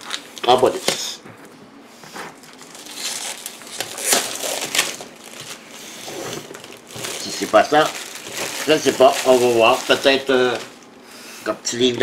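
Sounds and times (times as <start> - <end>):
packaging rustling and crinkling: 2.4 - 10.7.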